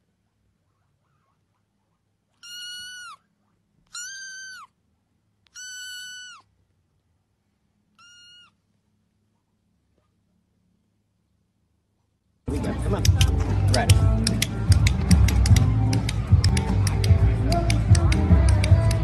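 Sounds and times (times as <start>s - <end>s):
kitten meowing: 2.4s - 4.8s, 5.5s - 6.5s, 8.0s - 8.6s.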